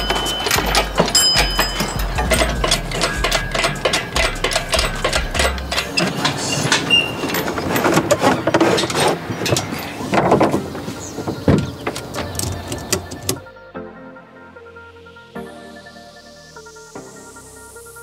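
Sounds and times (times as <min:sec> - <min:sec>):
low steady hum: 0:00.0 - 0:05.9
mechanical clicks and metal clinks: 0:00.0 - 0:07.8.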